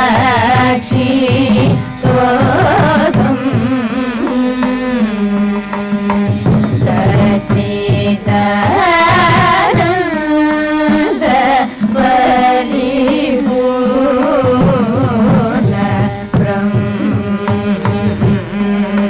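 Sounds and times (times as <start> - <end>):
hand drum strokes: 0.0 - 19.0
person singing ornamented melody: 0.0 - 19.0
steady drone: 0.1 - 19.0.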